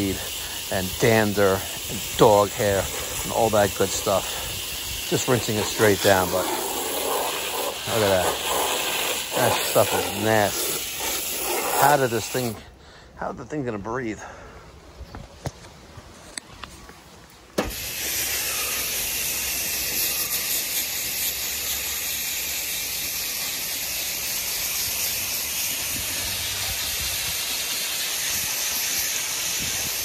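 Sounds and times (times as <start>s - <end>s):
hose nozzle spraying water: 0.0s - 12.6s, 17.6s - 30.0s
nozzle click: 17.6s - 17.9s.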